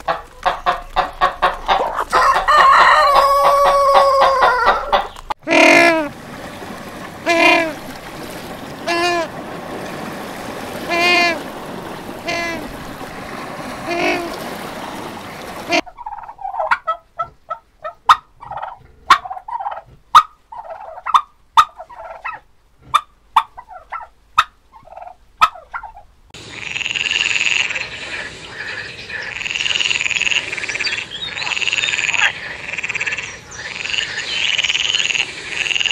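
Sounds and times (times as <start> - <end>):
turkey gobbling: 0.0 - 6.1, 15.7 - 26.1
surf breaking: 5.7 - 15.8
penguins braying: 7.2 - 7.8, 8.8 - 9.3, 10.9 - 11.4
frog croaking: 26.4 - 35.9.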